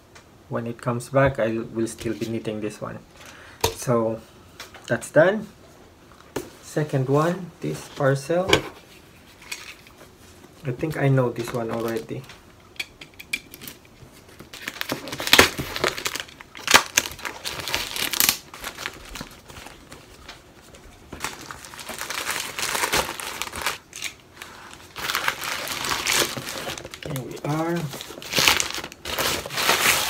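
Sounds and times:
plastic mailer bag crinkling: 14.4 - 30.0.

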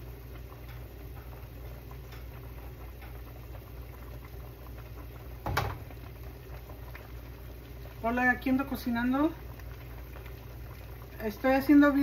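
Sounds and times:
pot bubbling: 0.0 - 12.0
steady low hum: 0.0 - 12.0
loud knock on pot: 5.4 - 5.9.

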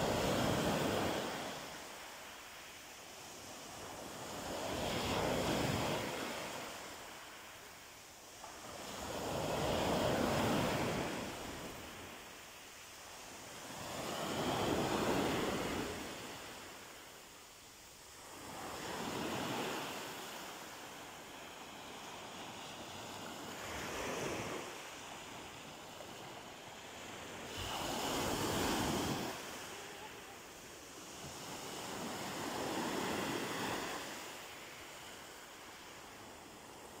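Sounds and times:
waves washing up pebble beach: 18.2 - 37.0.

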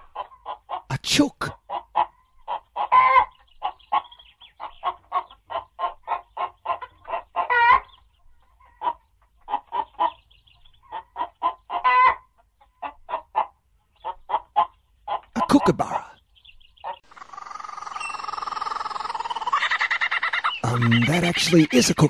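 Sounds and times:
chicken clucking: 0.0 - 22.0
chicken squawks: 1.5 - 7.9, 10.8 - 16.2, 16.8 - 22.0.

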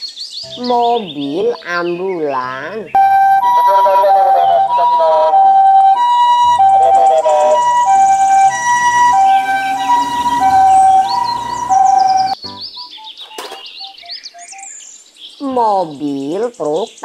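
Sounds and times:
two-tone ambulance siren: 3.0 - 12.4.

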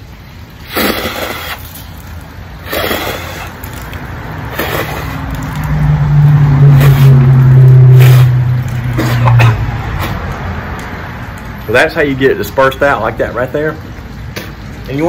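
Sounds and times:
man spitting: 0.6 - 1.9, 2.6 - 3.9, 4.5 - 5.4, 6.7 - 10.2
loud low drone: 5.4 - 10.0.

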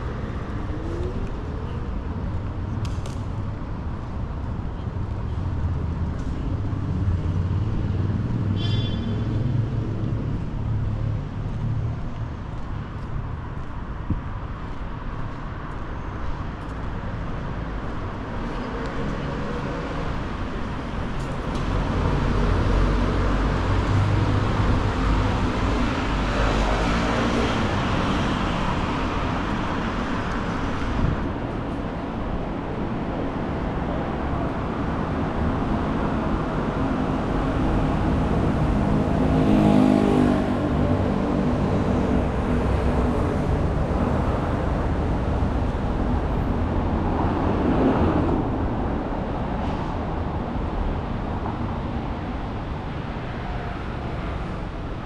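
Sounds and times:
cars passing on a street: 0.0 - 55.0
brief high squeal: 8.6 - 9.2.

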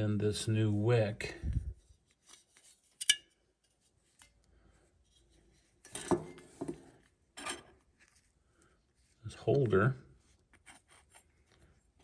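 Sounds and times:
metal parts clinking and rubbing: 2.2 - 3.8.

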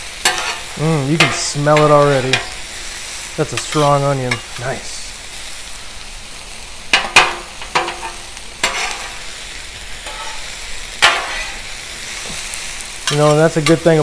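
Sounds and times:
vegetables sizzling in oil: 0.0 - 14.0
spatulas clanking on griddle: 0.1 - 2.8, 3.4 - 4.8, 6.9 - 9.3, 9.9 - 14.0.

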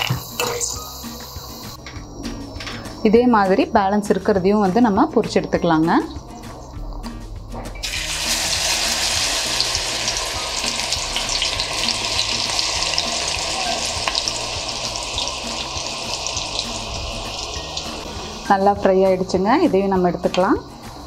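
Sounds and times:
food sizzling in hot oil: 0.0 - 1.8, 7.8 - 21.0.

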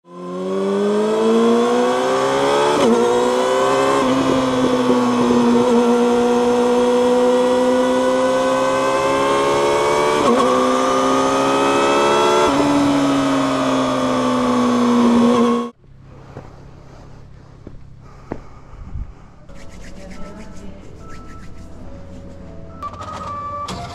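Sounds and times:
motorcycle engine revving: 0.1 - 16.1.

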